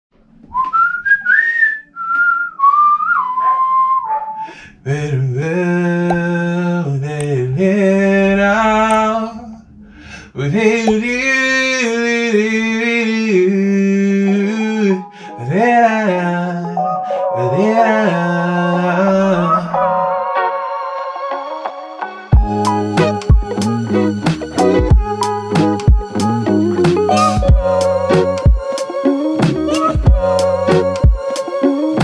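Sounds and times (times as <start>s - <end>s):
person whistling melody: 0.5s - 4.6s, 22.4s - 32.0s
man singing long notes: 4.8s - 20.1s, 22.4s - 32.0s.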